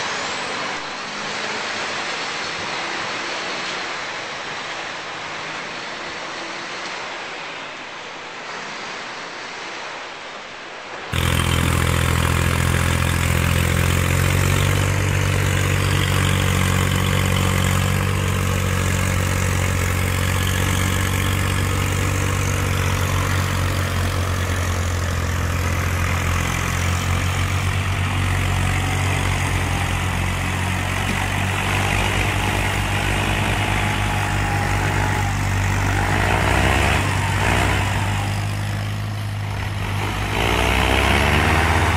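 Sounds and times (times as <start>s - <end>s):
rushing noise: 0.0s - 41.9s
tractor diesel engine under load: 10.9s - 41.9s.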